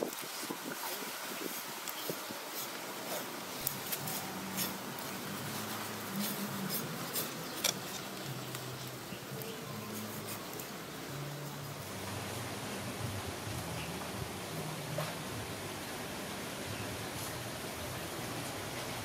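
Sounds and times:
steady hiss: 0:00.0 - 0:19.0.

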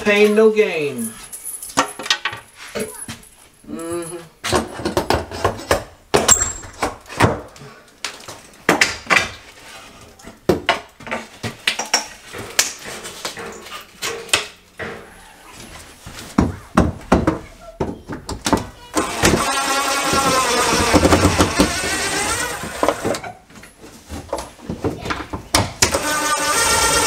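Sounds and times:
cordless drill running: 0:18.9 - 0:23.1, 0:25.9 - 0:27.0.

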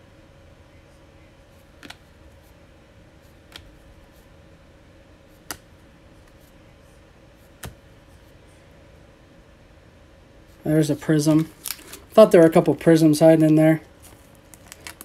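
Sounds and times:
faint steady hum: 0:00.0 - 0:15.0
trading card clicks: 0:01.8 - 0:02.0, 0:05.4 - 0:05.7.

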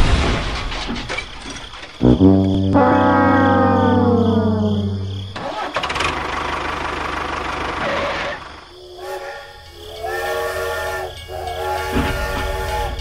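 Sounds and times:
steam train whistle: 0:02.0 - 0:05.3, 0:08.8 - 0:13.0.

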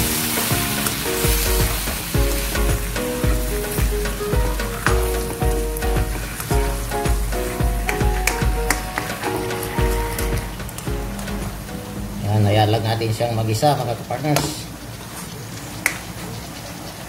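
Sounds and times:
chicken sizzling in hot oil: 0:00.0 - 0:06.5
background music with bass beat: 0:00.0 - 0:12.6.

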